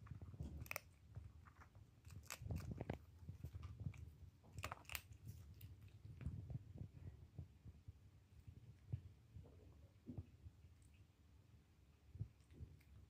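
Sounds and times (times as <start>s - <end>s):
cat crunching dry food: 0.0s - 6.4s.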